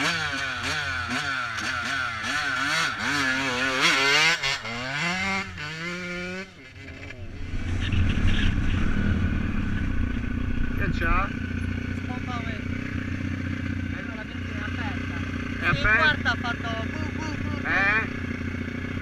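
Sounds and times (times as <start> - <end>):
dirt bike engine revving: 0.0 - 19.0
low rough engine rumble: 5.4 - 19.0.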